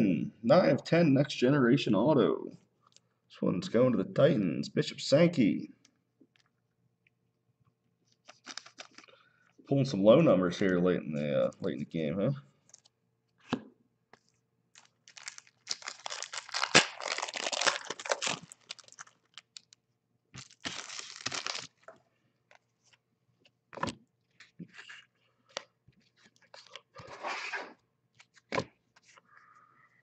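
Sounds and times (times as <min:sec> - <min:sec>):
cards rustling: 0:08.2 - 0:09.2, 0:14.2 - 0:19.8, 0:20.4 - 0:21.9
foil packs tearing: 0:14.8 - 0:19.7, 0:20.4 - 0:21.7.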